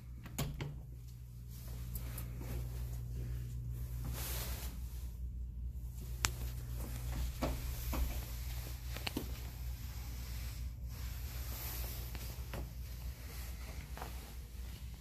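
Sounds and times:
low steady hum: 0.0 - 15.0
light clicks and taps: 6.2 - 8.2, 8.9 - 9.5.

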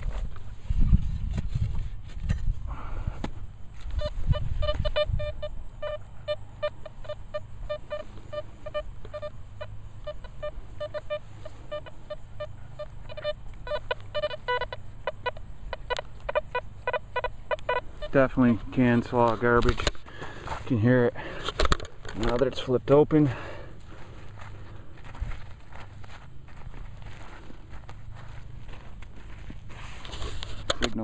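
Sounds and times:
metal detector beeping: 3.8 - 20.0.

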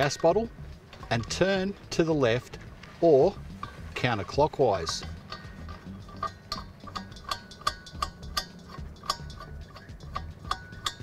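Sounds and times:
light metallic clicking: 0.0 - 11.0.

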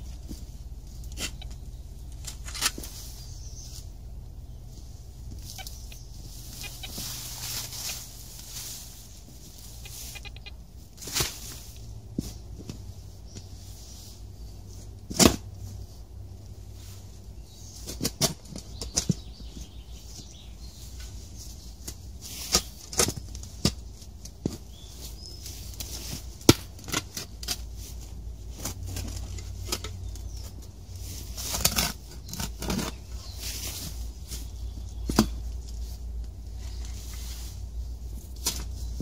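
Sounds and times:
spade knocking and scraping soil: 0.0 - 4.0, 14.8 - 15.7, 17.8 - 20.4, 21.8 - 37.5, 38.1 - 39.0
steady low rumble: 0.0 - 22.3, 23.2 - 39.0
rustling vegetation: 0.0 - 39.0.

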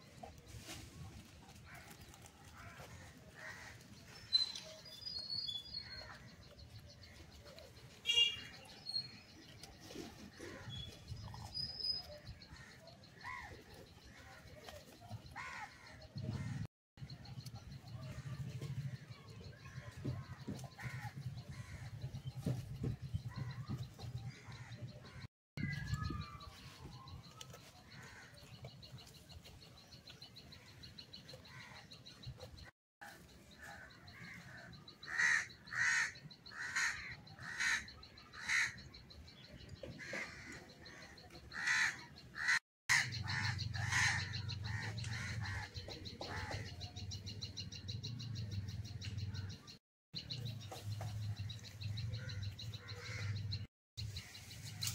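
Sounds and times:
crow cawing: 35.1 - 38.8, 41.6 - 45.6.

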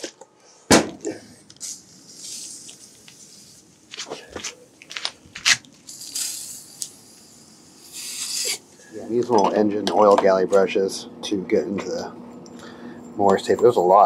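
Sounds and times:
aerosol can spraying: 5.9 - 8.6.

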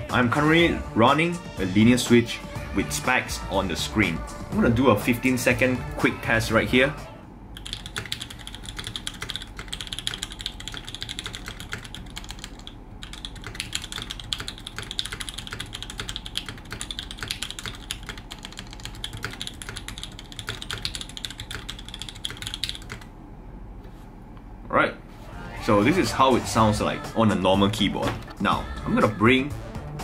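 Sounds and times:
fast typing on mechanical keyboard: 7.6 - 23.1.

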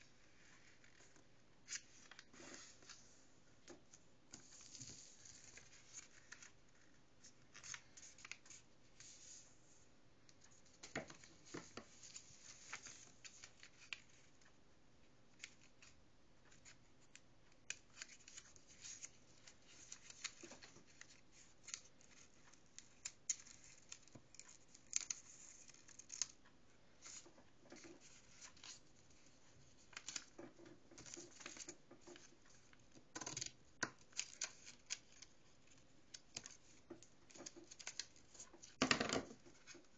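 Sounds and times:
paper being folded: 17.7 - 26.4, 27.8 - 30.4, 31.0 - 39.9.

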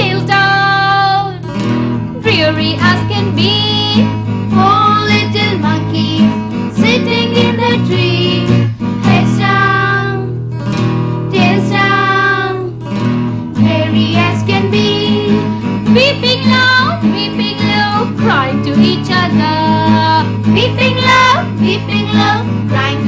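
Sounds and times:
woman and children singing: 0.0 - 1.5, 2.2 - 10.4, 11.3 - 12.8, 13.6 - 23.0
instrumental accompaniment: 0.0 - 23.0.

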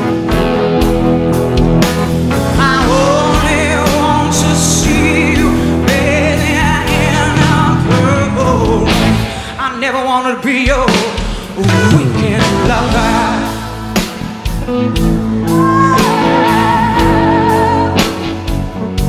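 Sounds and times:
live rock band ballad: 0.0 - 19.0
woman singing with vibrato: 15.4 - 18.4.

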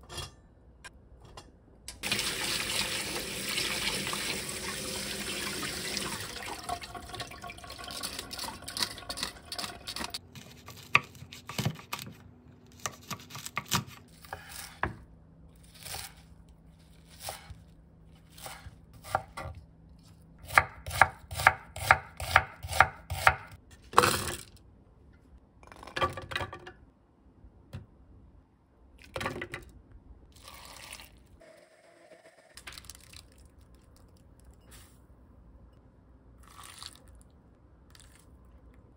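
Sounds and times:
tap water running over colander: 2.0 - 10.1
knife chopping on wooden board: 18.4 - 19.5, 20.4 - 23.6.

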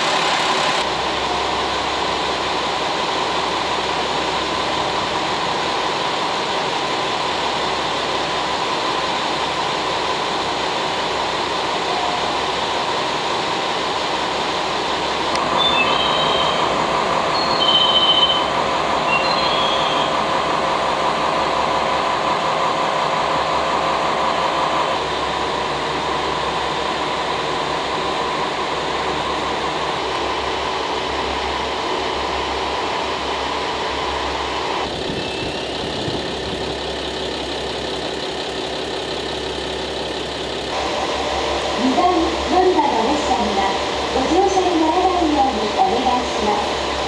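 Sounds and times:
diesel railcar engines idling: 0.0 - 47.0
short high squeals: 15.4 - 20.5, 35.1 - 36.0.

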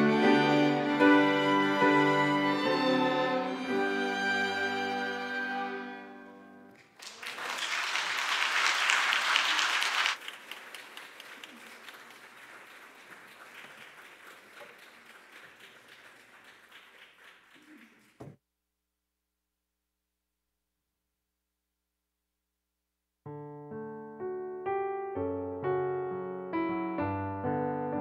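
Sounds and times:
string and woodwind chord: 0.0 - 6.6
audience applause: 6.8 - 18.4.

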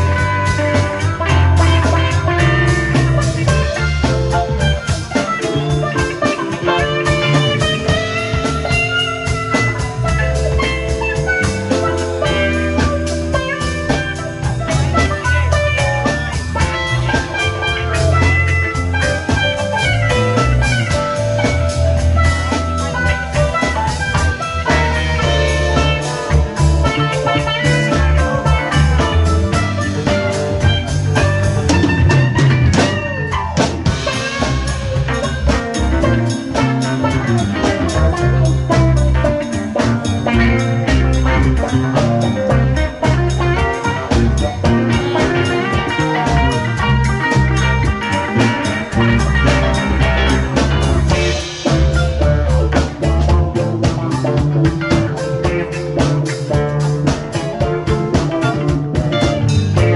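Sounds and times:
bass guitar: 0.0 - 59.9
drum kit: 0.0 - 59.9
electric guitars: 0.0 - 59.9
keyboards: 0.0 - 59.9.

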